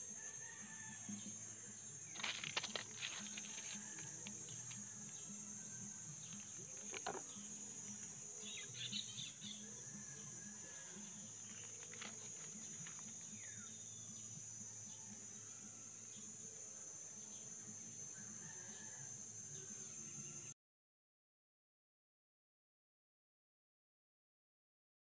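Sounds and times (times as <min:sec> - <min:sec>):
insects chirring: 0:00.0 - 0:20.6
rustling dry leaf litter: 0:02.2 - 0:04.3.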